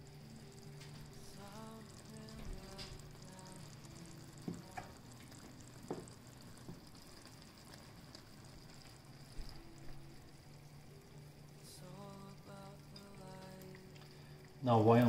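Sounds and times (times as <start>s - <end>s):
stew simmering in a pot: 0.0s - 15.0s
bubbles bursting with pops: 0.8s - 10.1s.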